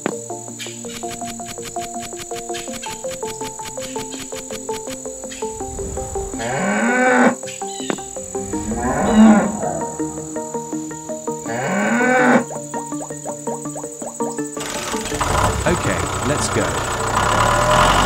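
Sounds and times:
background music: 0.0 - 18.0
cow mooing: 5.5 - 7.4, 8.1 - 12.5.

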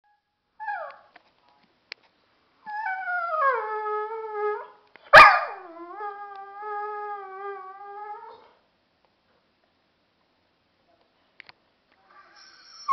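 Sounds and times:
dog barking: 5.2 - 5.6.

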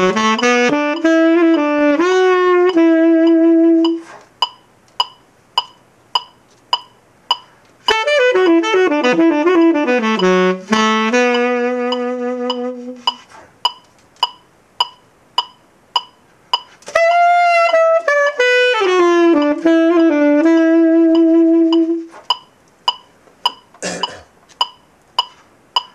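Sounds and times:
tenor saxophone playing: 0.0 - 4.2, 7.8 - 13.4, 16.8 - 22.1
metronome click: 0.0 - 25.9.

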